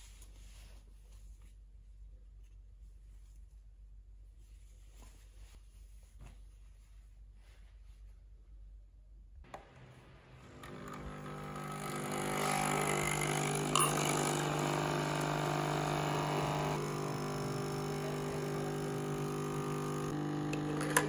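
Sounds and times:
coffee machine pump buzzing: 10.3s - 21.0s
glass clink: 13.7s - 14.5s.

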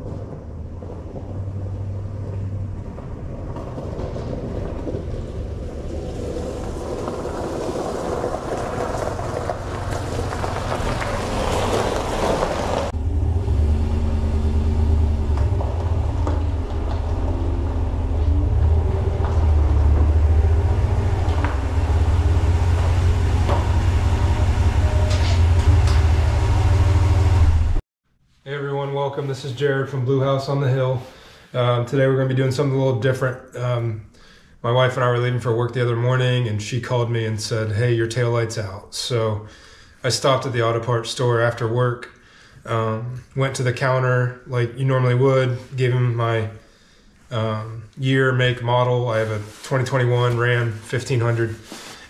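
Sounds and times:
low engine rumble: 0.0s - 27.8s, 42.6s - 52.0s
noisy rising sound: 0.0s - 27.8s.

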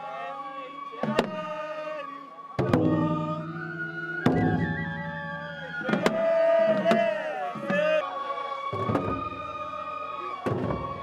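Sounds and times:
wavering high melody: 0.0s - 11.0s
sharp percussive strikes: 2.6s - 7.8s.

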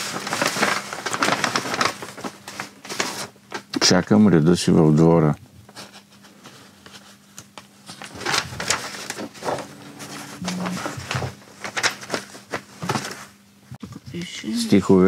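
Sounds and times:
paper rustling and crackling: 0.0s - 3.8s, 5.7s - 13.4s
faint steady hum: 0.0s - 15.0s.

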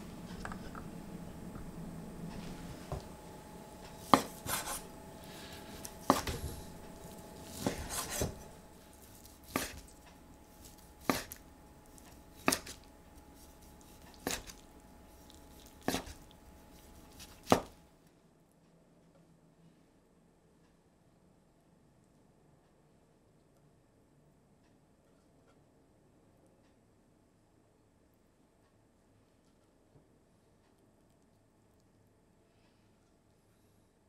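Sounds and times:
knife slicing chicken: 3.9s - 17.8s.

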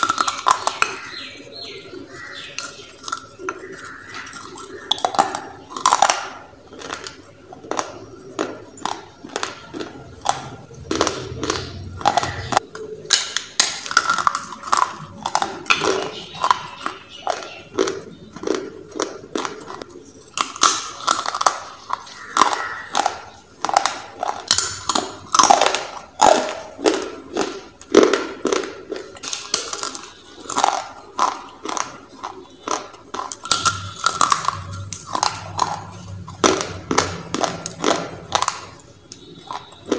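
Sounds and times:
crunching and chewing: 0.0s - 39.9s.

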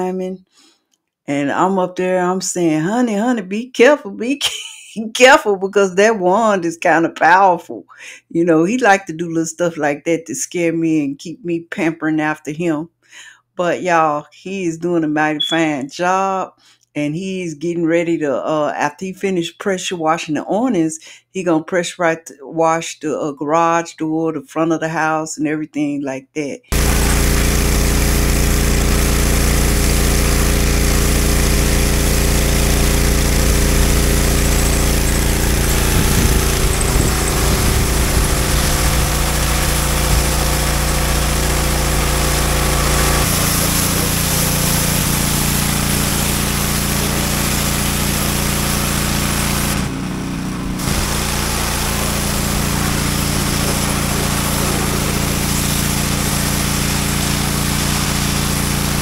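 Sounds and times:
pressure washer running: 26.7s - 59.0s
water spraying: 26.7s - 59.0s.

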